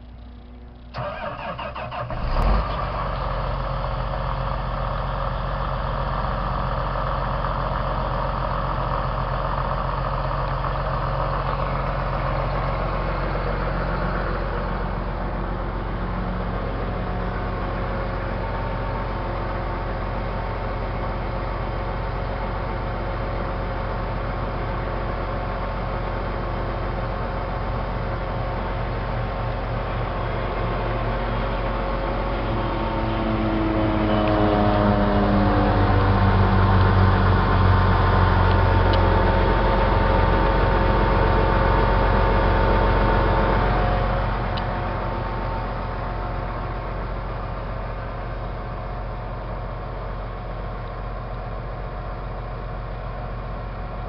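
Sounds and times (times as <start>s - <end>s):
diesel engine cranking: 0.0s - 4.2s
diesel engine idling: 0.0s - 54.0s.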